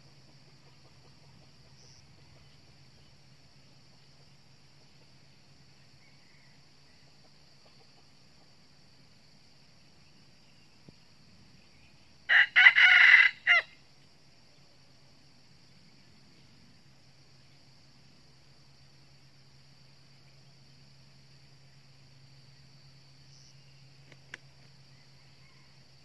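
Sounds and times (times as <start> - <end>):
high insect drone: 0.0 - 26.0
rooster crowing: 12.3 - 13.8, 24.9 - 26.0.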